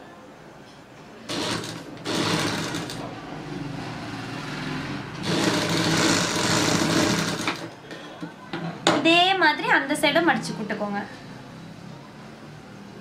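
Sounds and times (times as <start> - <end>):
sewing machine stitching: 1.3 - 3.1, 5.1 - 7.7.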